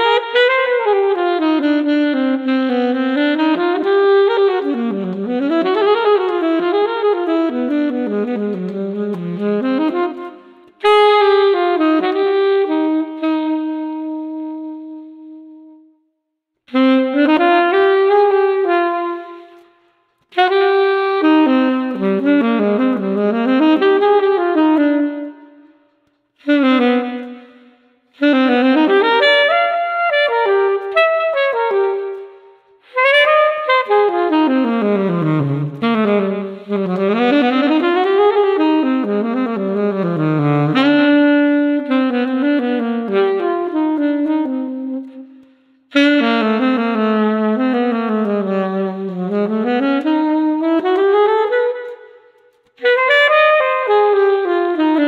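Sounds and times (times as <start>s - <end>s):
solo saxophone melody: 0.0s - 55.0s.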